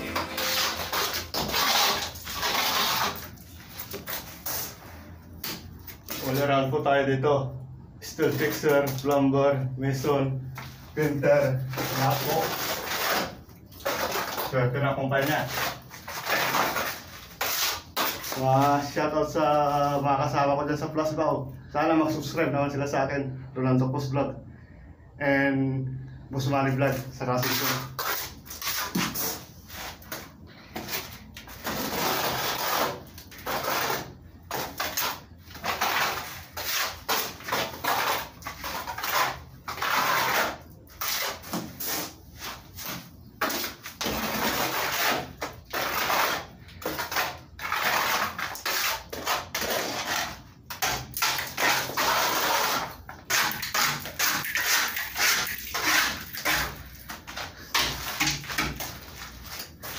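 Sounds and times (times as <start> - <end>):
trowel scraping plaster on wall: 0.0 - 4.8, 10.6 - 18.9, 27.0 - 59.9.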